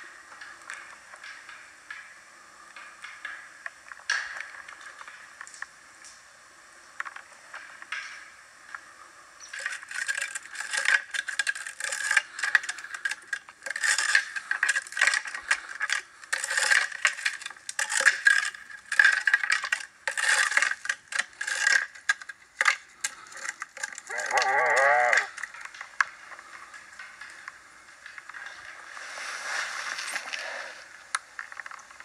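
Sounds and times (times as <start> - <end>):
antler scraping tree trunk: 9.4 - 25.8.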